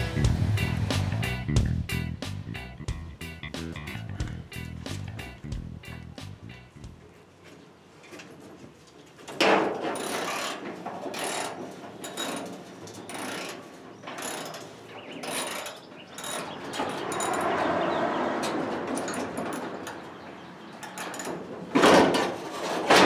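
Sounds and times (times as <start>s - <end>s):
ratcheting lifting gear clanking: 9.8s - 17.6s, 18.8s - 20.1s, 20.8s - 21.5s.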